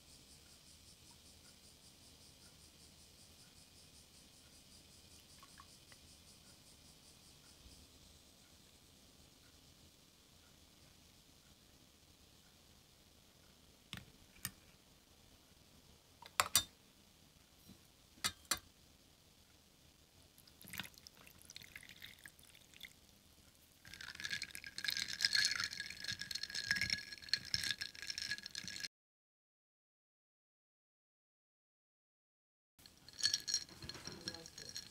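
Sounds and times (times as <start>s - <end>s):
water pouring over ice: 20.4s - 23.0s, 23.8s - 28.9s, 33.0s - 34.9s
ice swirled rattling in glass: 20.6s - 22.9s, 23.8s - 28.9s, 32.8s - 34.9s
ice cubes clinking in glass: 23.9s - 28.9s, 32.9s - 34.9s.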